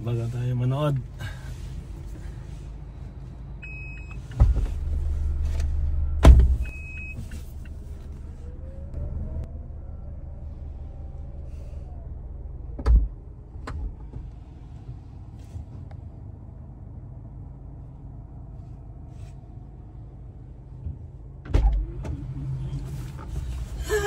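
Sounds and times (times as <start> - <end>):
car engine idling: 0.0 - 24.0
loud thump: 6.2 - 6.7.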